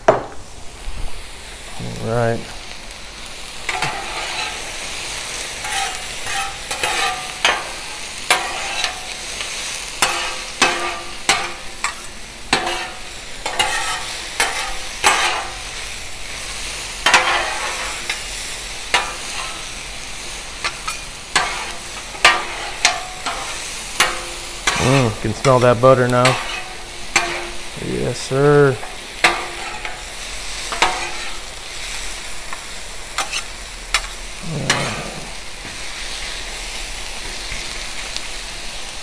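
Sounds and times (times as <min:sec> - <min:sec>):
vegetables sizzling on griddle: 0:00.0 - 0:39.0
metal spatulas clacking and scraping: 0:05.6 - 0:07.7, 0:10.0 - 0:15.5, 0:17.0 - 0:17.8.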